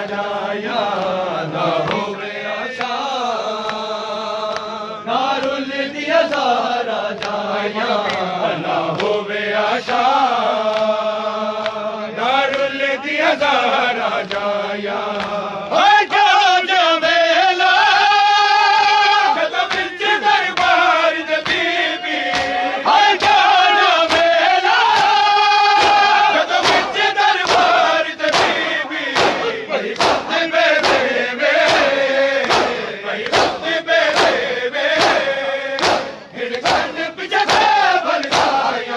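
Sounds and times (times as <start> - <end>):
crowd of men chanting: 0.0 - 38.9
hands slapping on bare chests: 5.3 - 9.2, 9.8 - 11.8, 12.4 - 12.8, 13.6 - 15.6, 19.2 - 38.9.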